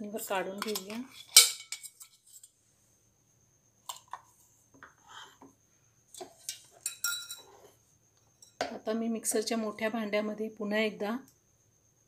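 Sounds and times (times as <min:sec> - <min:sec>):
metal spoon scraping steel jar: 0:00.6 - 0:02.5, 0:06.2 - 0:07.7
spoon clinking on glass and steel: 0:06.5 - 0:07.5.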